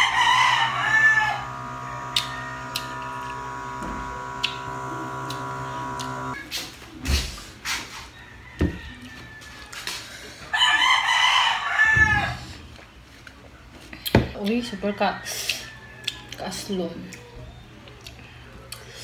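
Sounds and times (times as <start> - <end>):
rooster crowing: 0.0 - 6.4.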